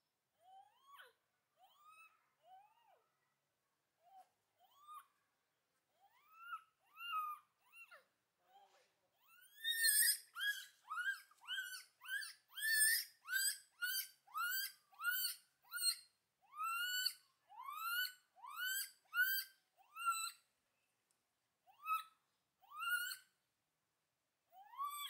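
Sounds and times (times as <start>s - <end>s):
baby gibbon calling: 6.0s - 8.0s, 9.2s - 20.4s, 21.7s - 23.3s, 24.6s - 25.0s.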